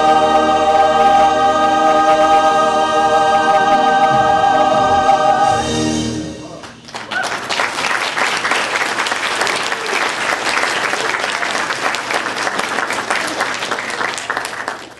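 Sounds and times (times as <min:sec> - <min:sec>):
audience applauding: 0:06.6 - 0:14.9.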